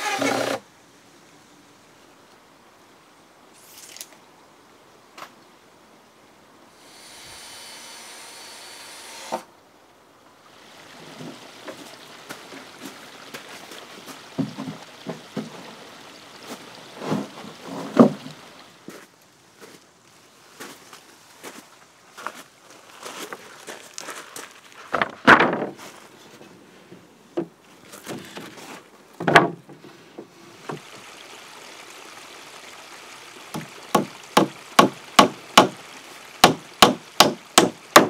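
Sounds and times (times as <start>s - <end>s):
wooden knocks and clatters: 14.4s - 15.8s, 17.0s - 18.3s, 24.9s - 26.0s, 27.4s - 30.8s.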